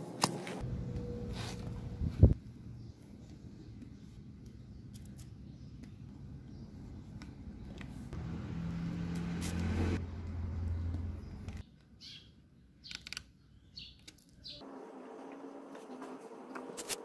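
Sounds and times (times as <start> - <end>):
low engine hum: 0.6 - 2.4, 7.7 - 11.6.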